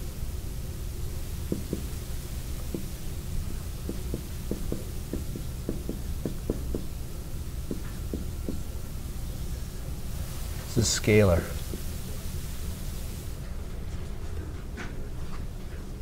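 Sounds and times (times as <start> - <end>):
low room hum: 0.0 - 16.0
marker tapping on whiteboard: 1.5 - 2.0, 2.7 - 2.9, 3.8 - 6.9, 7.7 - 8.6.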